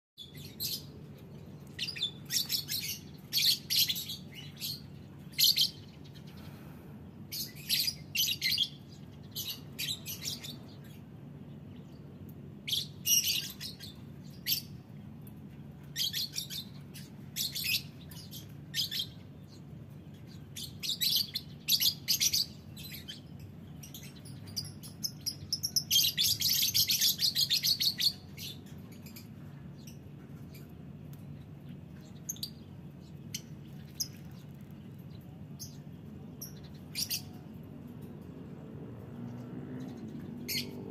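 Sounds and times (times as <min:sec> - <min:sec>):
lovebirds chirping: 0:15.8 - 0:38.2.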